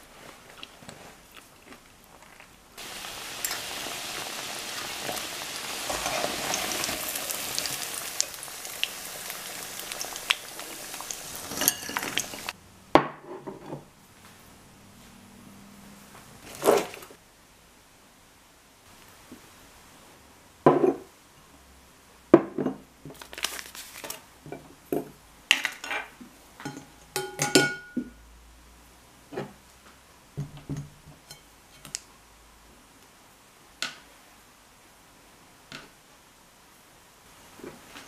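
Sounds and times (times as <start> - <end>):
sachet crinkling: 23.2 - 24.1
glassware and dishes knocking: 26.6 - 28.1.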